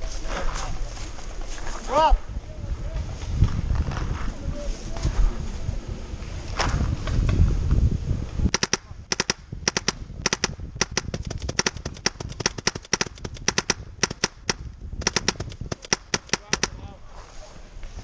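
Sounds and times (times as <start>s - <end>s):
paintball marker firing pops: 8.5s - 16.8s.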